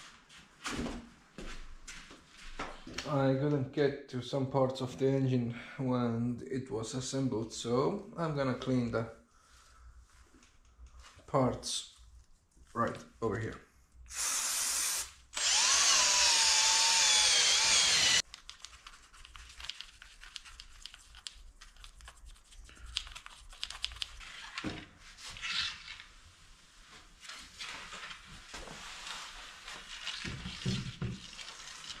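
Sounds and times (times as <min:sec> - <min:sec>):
aerosol spray hissing: 0:14.1 - 0:15.2
drill with wire brush whining: 0:14.1 - 0:18.2.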